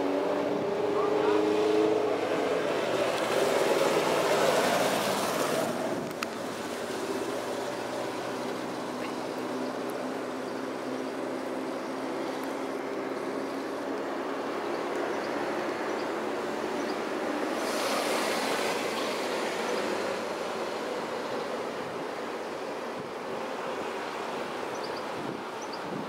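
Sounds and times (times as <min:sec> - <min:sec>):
motorcycle passing: 0:00.0 - 0:05.8
wind rushing on microphone: 0:13.8 - 0:26.0.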